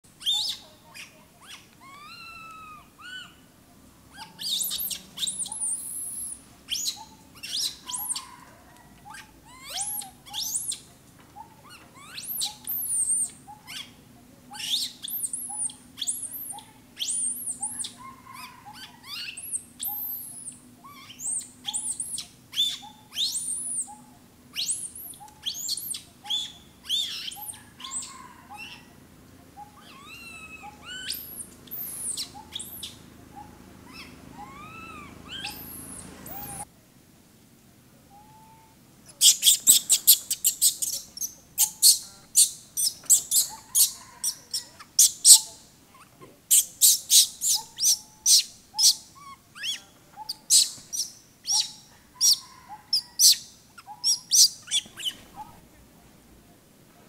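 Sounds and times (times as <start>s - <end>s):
infant monkey squealing: 0.2s - 3.4s, 4.1s - 29.0s, 29.6s - 36.7s, 38.1s - 55.6s.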